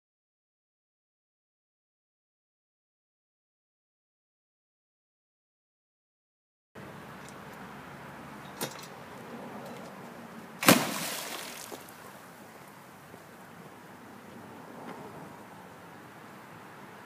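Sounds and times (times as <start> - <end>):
chair splashing into water: 10.6 - 12.1.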